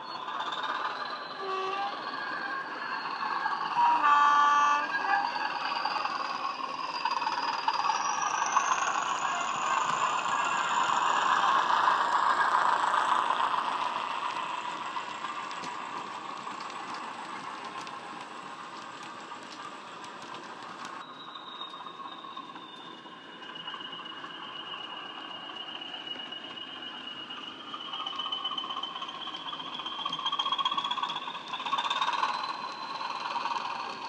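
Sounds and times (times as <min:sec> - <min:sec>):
steady high whistle: 0:00.0 - 0:17.4, 0:21.0 - 0:34.0
model train engine sound: 0:00.0 - 0:34.0
wheels clicking over track: 0:05.3 - 0:34.0.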